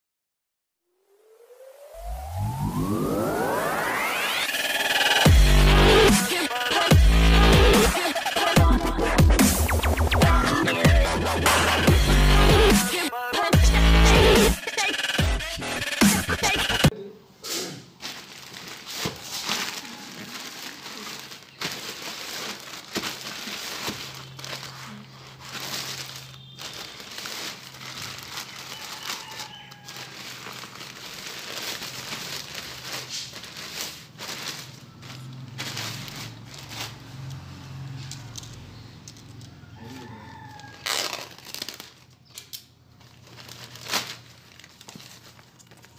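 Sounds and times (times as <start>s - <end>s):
plastic bag crinkling: 18.0s - 45.9s.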